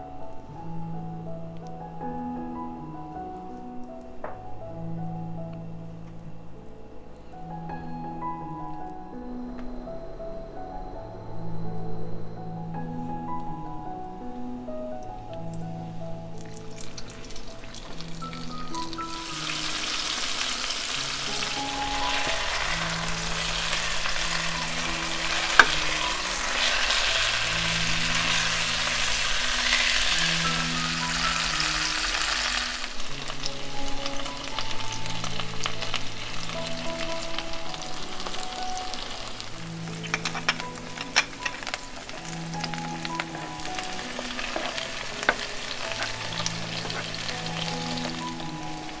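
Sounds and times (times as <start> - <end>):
soft background music: 0.0 - 49.0
food sizzling in a frying pan: 16.3 - 49.0.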